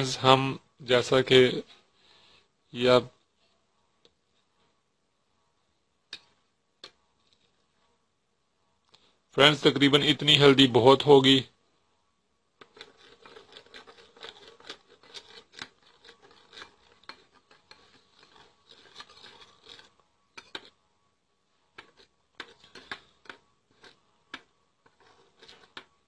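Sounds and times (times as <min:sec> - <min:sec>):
spoon scraping in small bowl: 0:12.6 - 0:20.8, 0:21.7 - 0:26.0.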